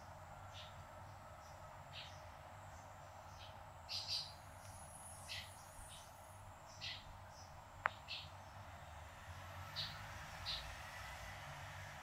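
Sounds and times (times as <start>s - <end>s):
faint bird chirps: 0.5s - 8.6s.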